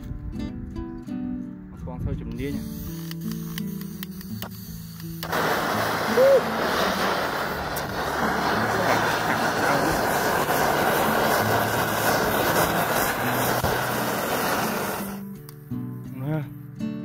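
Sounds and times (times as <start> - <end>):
blow torch jet hiss: 2.4 - 15.4.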